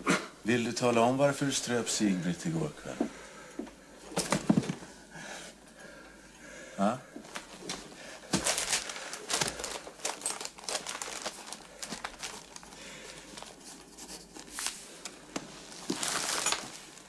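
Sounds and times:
newspaper rustling: 0:07.3 - 0:17.0.

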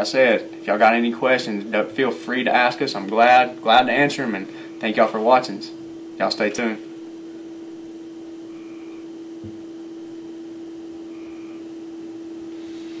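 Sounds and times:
low hum: 0:00.3 - 0:13.0
soft knock: 0:09.4 - 0:09.6
faint hiss: 0:12.4 - 0:13.0.

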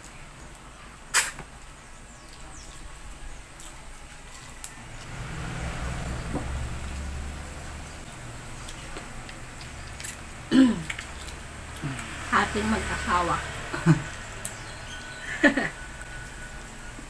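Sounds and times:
chewing and tearing chicken: 0:02.3 - 0:05.1, 0:08.0 - 0:12.2
low steady rumble: 0:04.8 - 0:17.0.

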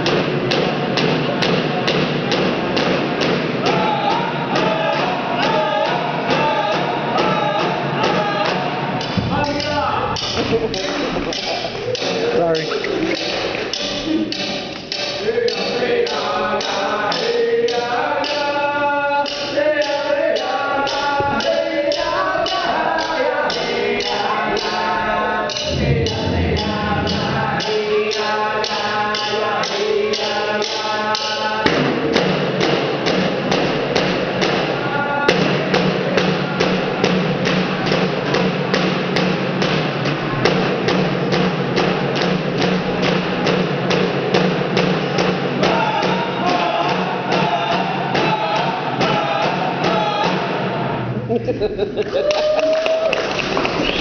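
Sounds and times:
frame hand drum beat: 0:00.0 - 0:18.6, 0:19.3 - 0:50.9
voices singing: 0:00.0 - 0:38.9, 0:43.9 - 0:52.3.

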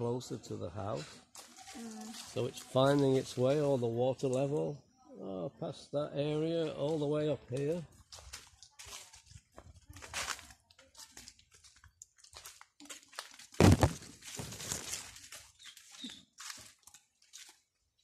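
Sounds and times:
footsteps crunching dry leaves: 0:01.3 - 0:03.8, 0:07.7 - 0:17.8
plants rustling: 0:01.3 - 0:04.4, 0:10.0 - 0:17.8.

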